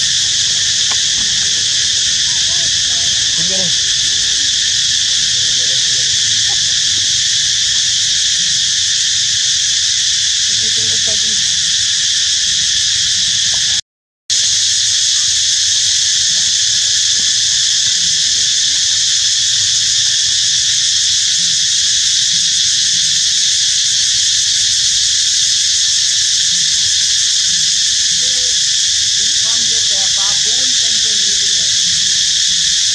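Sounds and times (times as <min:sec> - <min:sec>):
insects droning: 0:00.0 - 0:32.9.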